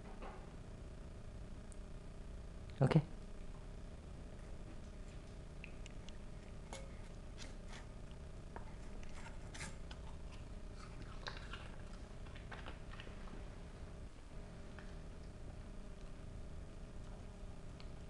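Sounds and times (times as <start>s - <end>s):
dog crunchy chewing: 4.4s - 13.5s.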